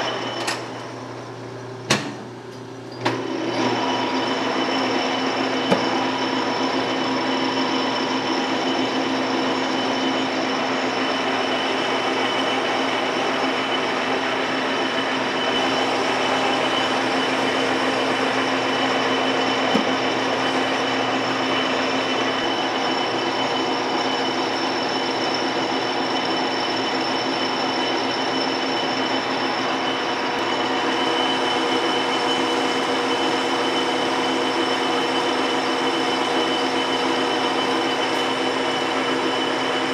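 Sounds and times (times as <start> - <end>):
metal lathe whining: 0.0 - 1.4, 3.0 - 39.9.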